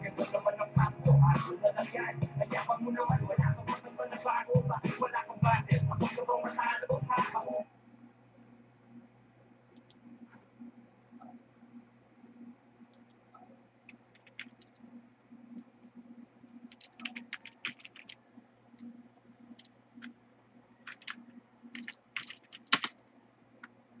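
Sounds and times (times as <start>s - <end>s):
typing on computer keyboard: 13.9s - 14.8s, 16.6s - 18.2s, 20.8s - 23.0s.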